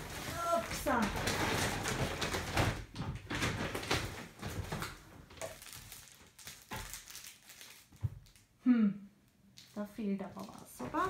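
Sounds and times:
packaging rustling and knocking: 0.0s - 8.4s.

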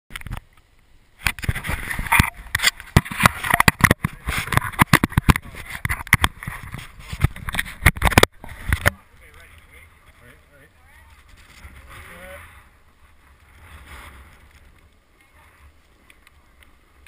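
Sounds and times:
hand knocking and rubbing camera: 1.3s - 9.0s.

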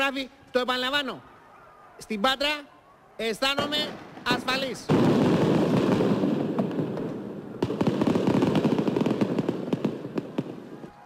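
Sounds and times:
rapid crackle of sharp bangs: 3.6s - 10.7s.

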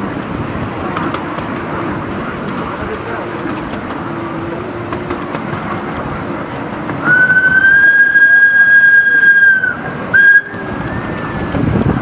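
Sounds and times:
small train running on track: 0.0s - 12.0s
steam locomotive whistle: 7.0s - 11.5s.

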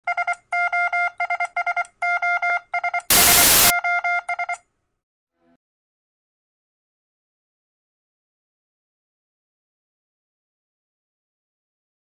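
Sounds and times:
short buzzy electronic beeps: 2.9s - 4.6s
loud static hiss: 3.1s - 3.7s.

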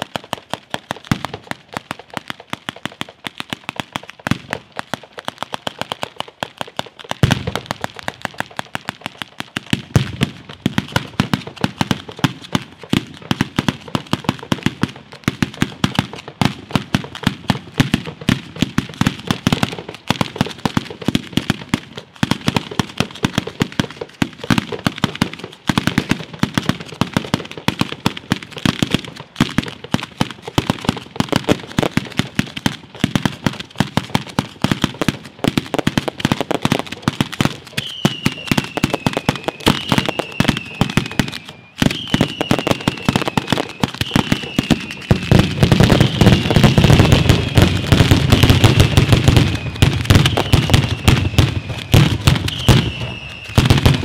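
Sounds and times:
firecracker cracks and bangs: 0.0s - 54.0s
falling firework whistles: 37.6s - 54.0s
deep firework booms: 41.9s - 54.0s.

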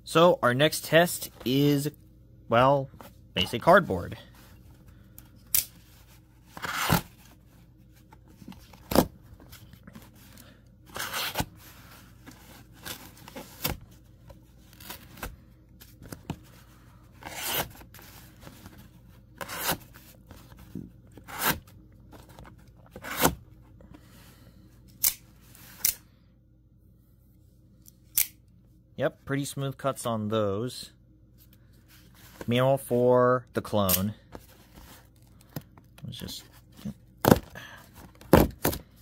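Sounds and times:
knife slicing cardboard: 19.4s - 19.9s.

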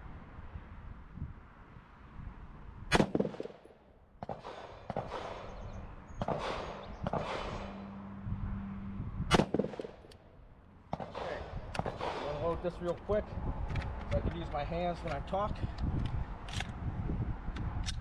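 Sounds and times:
rifle shots: 2.9s - 7.9s, 9.3s - 10.2s, 10.9s - 12.8s.

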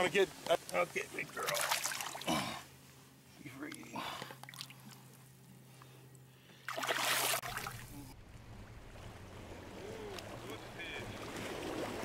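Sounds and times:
faint steady hum: 0.0s - 12.0s
rush of splashing water: 1.4s - 2.4s, 6.7s - 12.0s
muffled water: 6.6s - 12.0s
low rumble of wind: 7.3s - 12.0s.

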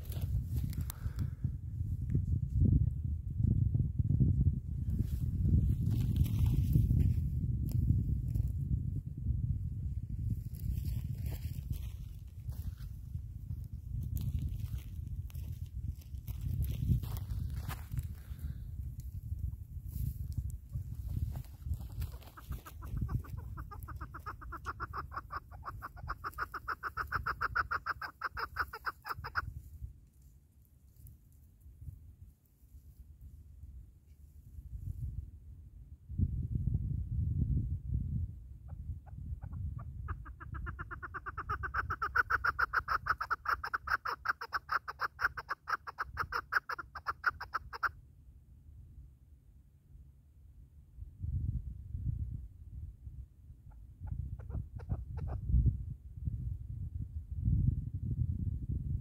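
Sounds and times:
partridge rapid clucking: 21.4s - 29.4s, 40.0s - 47.9s.

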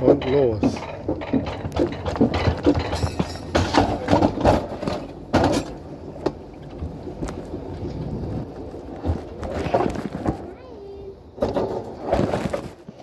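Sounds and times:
sled rumbling on metal track: 0.0s - 10.7s
wheels clacking on rails: 0.0s - 10.7s.

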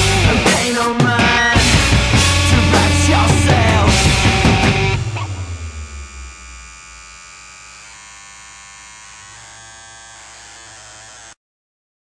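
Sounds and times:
electric buzz with droning tones: 1.6s - 11.4s.

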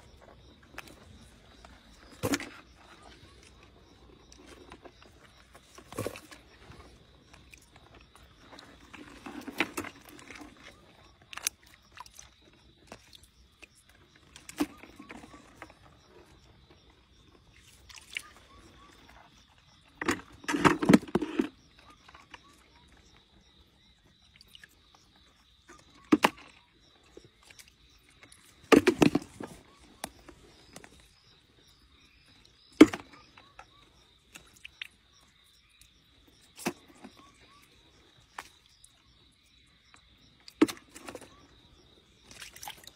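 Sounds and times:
splashing in shallow water: 17.5s - 23.0s, 40.4s - 42.9s.

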